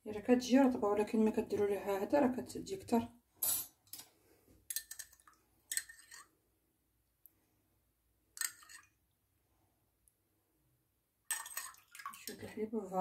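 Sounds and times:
faint wet splashing: 11.3 - 12.6.

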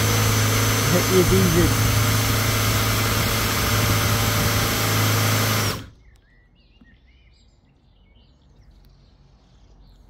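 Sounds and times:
power drill motor whine: 0.0 - 6.0
faint birdsong: 5.6 - 10.0.

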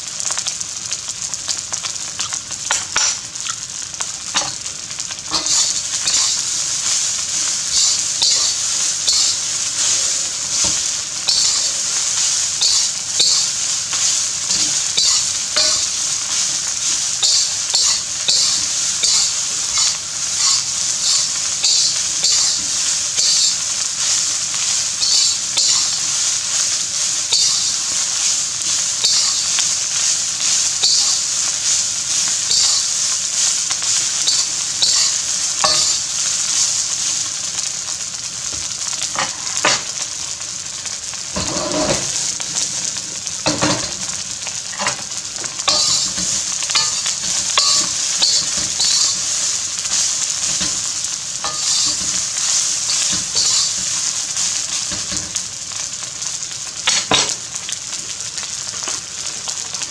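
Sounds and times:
rice sizzling in a wok: 0.0 - 59.9
metal spatula scraping a wok: 4.3 - 7.1, 7.7 - 16.6, 17.2 - 22.6, 34.3 - 36.6, 41.4 - 55.4.

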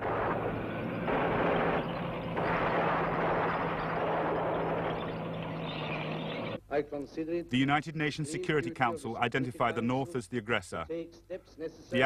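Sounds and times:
low hum: 0.0 - 6.6
tank engine and combat rumble: 0.0 - 6.6.

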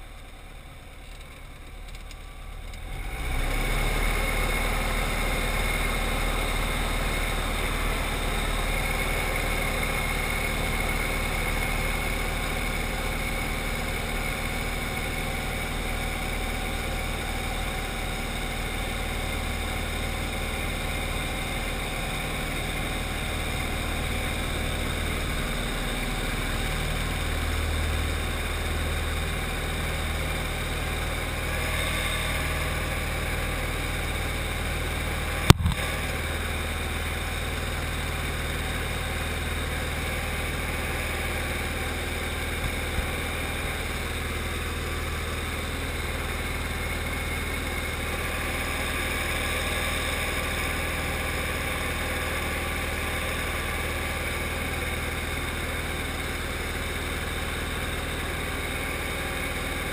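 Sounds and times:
light aircraft engine droning: 0.0 - 59.9
sharp click: 35.5 - 35.8.

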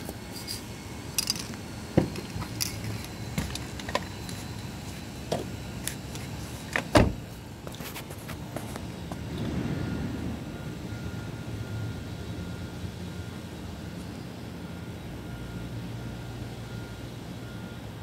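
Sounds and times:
steady low rumble: 0.0 - 13.8.

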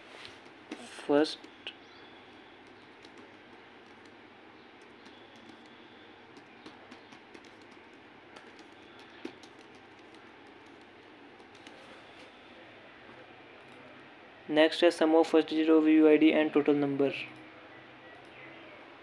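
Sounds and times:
keyboard key clicks: 2.6 - 4.2, 4.8 - 11.8.

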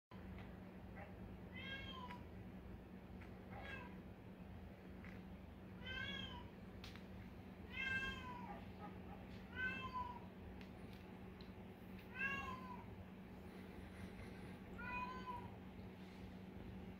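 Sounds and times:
cat meowing: 7.7 - 8.6, 9.5 - 10.2, 12.1 - 12.8.

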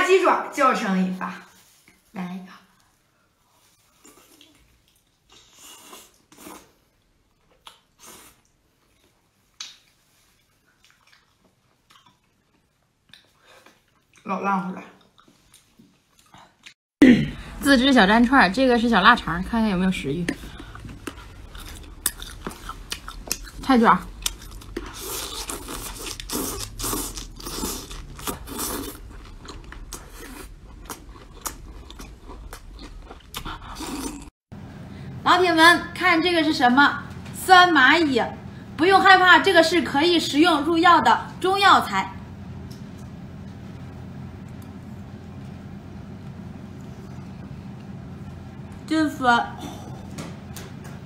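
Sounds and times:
wet chewing and slurping: 3.6 - 14.2, 20.2 - 34.3.

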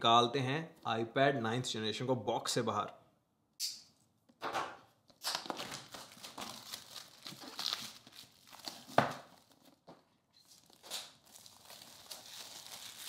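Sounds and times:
plastic wrap crinkling and tearing: 5.2 - 13.0.

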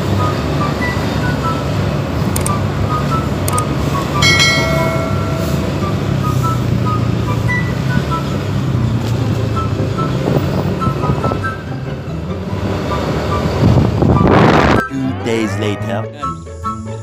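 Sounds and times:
brief high tone: 4.2 - 6.4.

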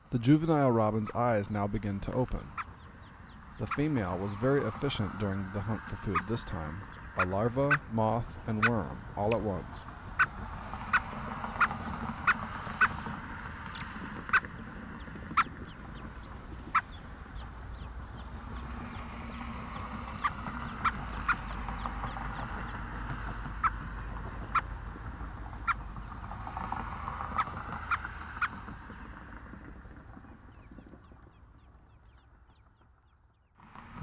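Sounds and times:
bird chucks: 2.4 - 5.0, 6.0 - 7.9, 8.5 - 9.6, 13.7 - 22.9.

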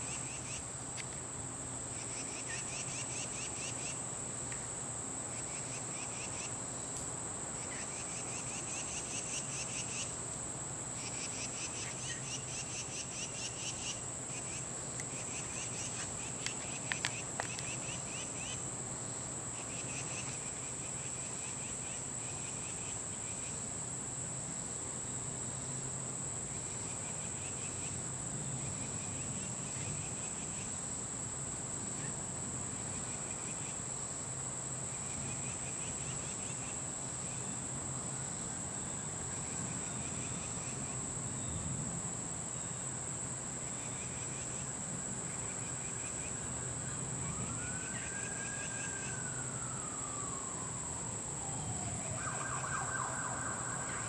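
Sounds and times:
insects droning and chirping: 0.0 - 54.0
low traffic rumble: 40.9 - 54.0
distant siren wailing: 46.3 - 54.0.

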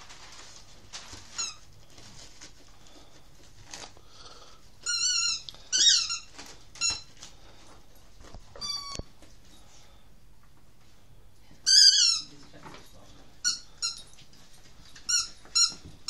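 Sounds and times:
wrapping paper rustling and ripping: 0.0 - 4.4
dog squeaking: 4.8 - 7.1, 8.6 - 9.0, 11.7 - 12.3.

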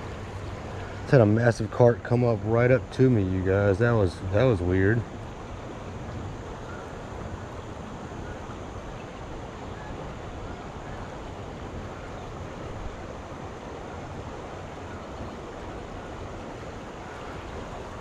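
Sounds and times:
river rushing over rocks: 4.0 - 18.0.

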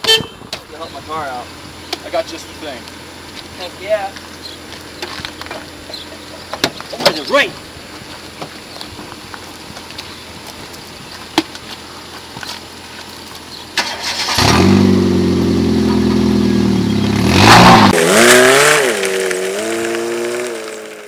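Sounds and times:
car engine starting and running: 0.6 - 21.0
car engine revving: 11.7 - 21.0.

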